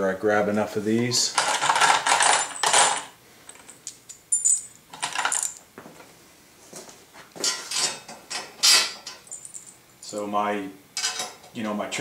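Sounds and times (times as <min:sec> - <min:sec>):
bolts and nuts clinking: 0:01.3 - 0:05.6, 0:07.5 - 0:09.8.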